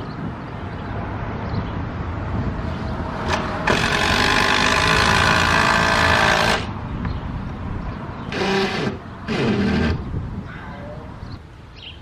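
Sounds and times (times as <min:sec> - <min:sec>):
power drill running: 0:03.3 - 0:06.7, 0:08.3 - 0:10.0.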